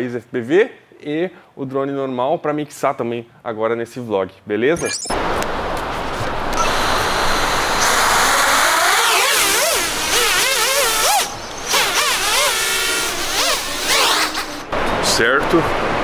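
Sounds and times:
drone motors whining: 0:06.6 - 0:14.7.

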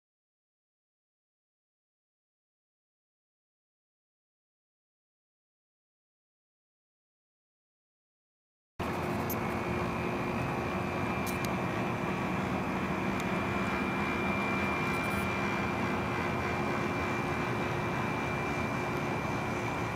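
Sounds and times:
high electric motor whine: 0:08.8 - 0:19.9.

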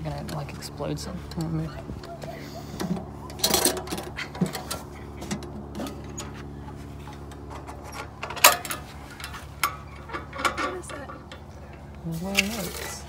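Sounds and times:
latch clicks and scrapes: 0:02.1 - 0:06.5, 0:07.1 - 0:11.5
metal lid clanking open: 0:02.8 - 0:06.3, 0:07.5 - 0:11.3.

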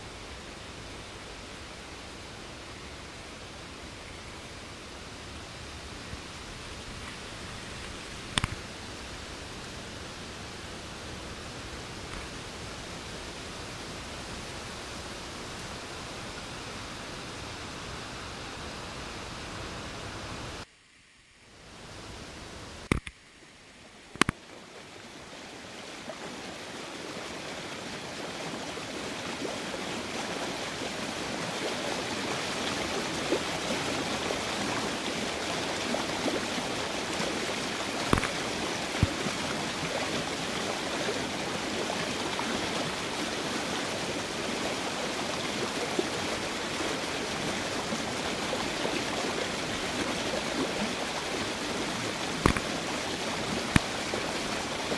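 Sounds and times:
waterfall and stream rushing: 0:00.0 - 0:20.6, 0:21.6 - 0:54.9
sharp clicks: 0:22.8 - 0:23.2, 0:24.1 - 0:24.4, 0:52.4 - 0:52.7.

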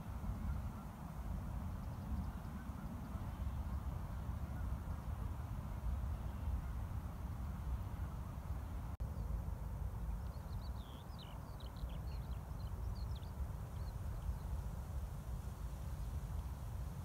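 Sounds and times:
songbird twittering: 0:10.1 - 0:14.6.

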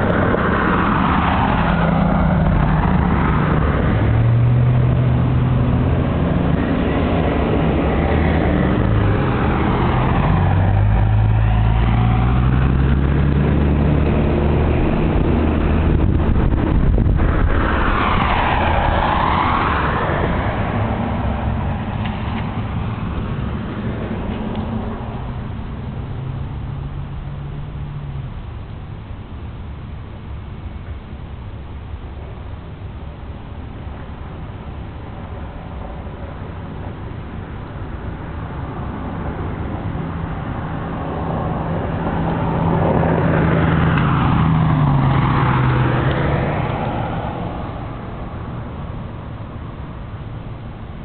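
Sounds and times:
low vehicle engine hum: 0:00.0 - 0:51.0
vehicles passing with hiss: 0:00.0 - 0:51.0.

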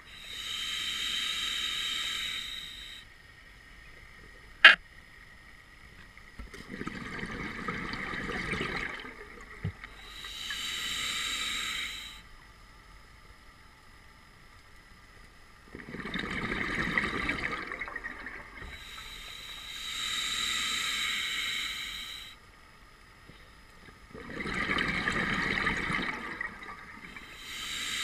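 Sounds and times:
regulator inhalation hiss: 0:00.0 - 0:03.2, 0:09.9 - 0:12.3, 0:18.6 - 0:22.5, 0:27.1 - 0:28.0
exhaled bubbles: 0:06.6 - 0:09.9, 0:15.7 - 0:19.1, 0:24.1 - 0:27.4.

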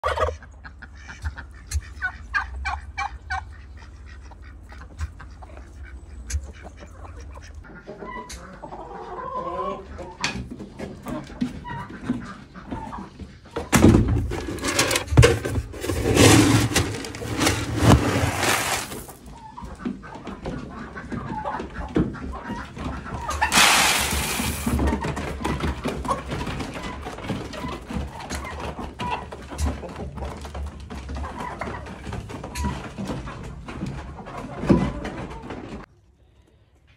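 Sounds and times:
chickens and turkeys calling: 0:00.0 - 0:36.6.

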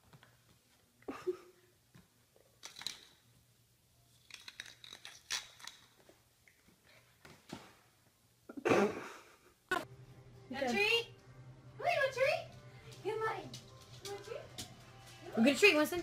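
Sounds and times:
puppy claws scrabbling on tile: 0:01.9 - 0:03.3, 0:04.1 - 0:07.8, 0:12.9 - 0:16.0.

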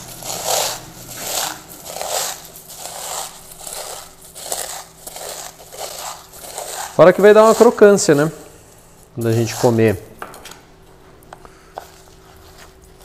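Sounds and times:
corn flakes crunching in metal bowl: 0:00.0 - 0:10.0.

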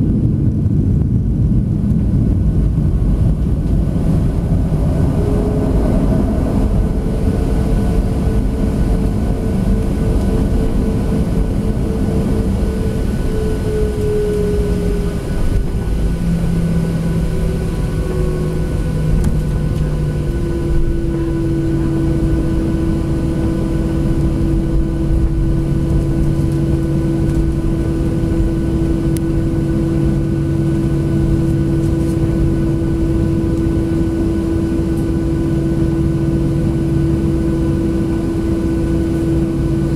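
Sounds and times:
jet engines rumbling and whining: 0:00.0 - 0:39.9.

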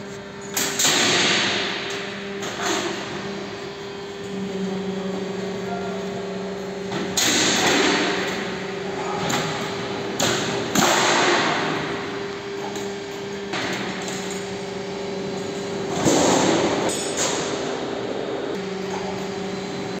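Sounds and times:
machine motor humming: 0:00.0 - 0:20.0.

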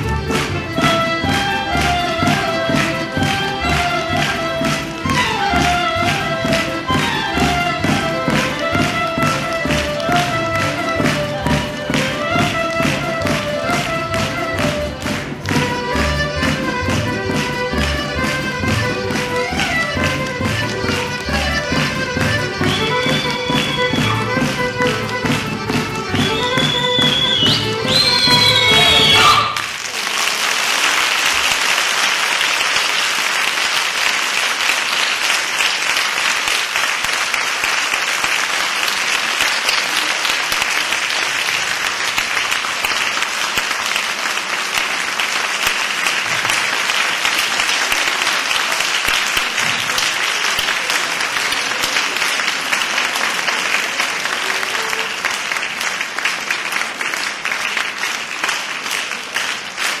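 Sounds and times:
audience applauding: 0:00.0 - 1:00.0
rhythmic clapping in unison: 0:00.0 - 1:00.0.

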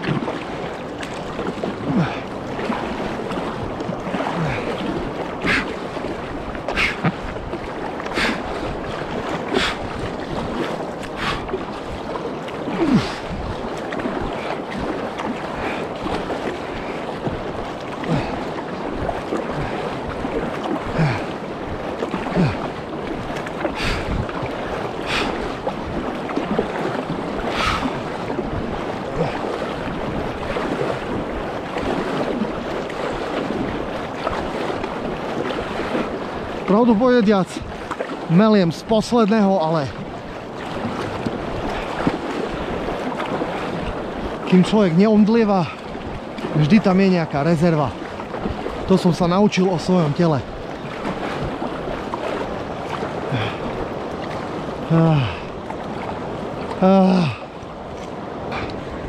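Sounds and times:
paddle strokes splashing: 0:00.0 - 0:59.0
river water rushing: 0:00.0 - 0:59.0.

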